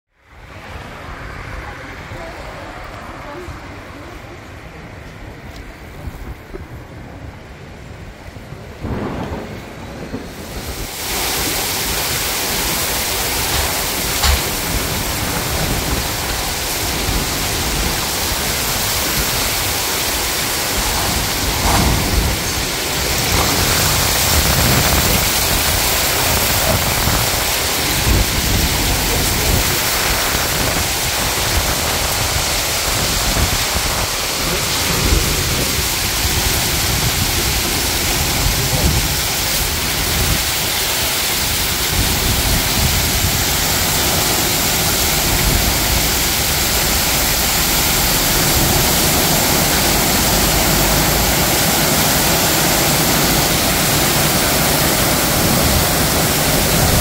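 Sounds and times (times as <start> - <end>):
heavy rain: 0.1 - 57.0
thunder rumbling: 6.0 - 57.0.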